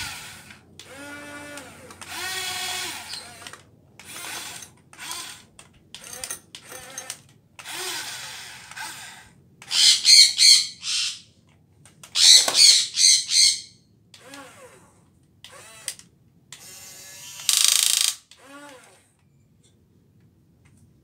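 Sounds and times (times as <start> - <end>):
toy electric motors whirring: 0.0 - 11.2, 12.0 - 19.2
bird squawking: 9.7 - 11.3, 12.2 - 13.8.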